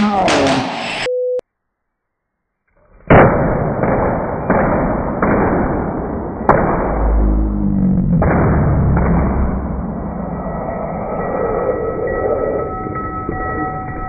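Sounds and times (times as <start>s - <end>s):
capacitors exploding with bangs: 3.0s - 7.3s.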